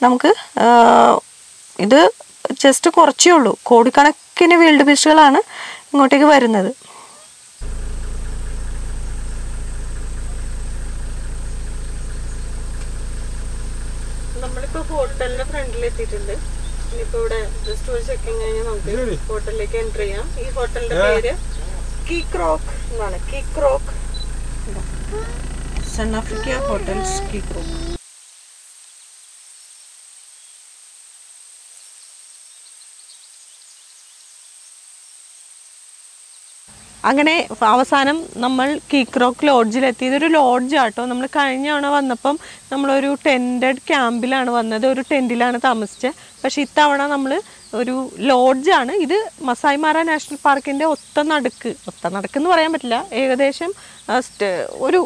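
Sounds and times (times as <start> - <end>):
insect hiss and tone: 0.0 - 55.0
vehicle engine humming: 7.6 - 28.0, 36.7 - 55.0.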